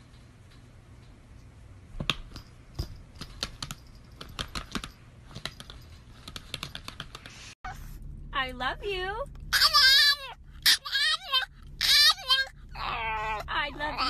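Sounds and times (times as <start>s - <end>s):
clicking and tapping on laptop: 2.0s - 7.3s.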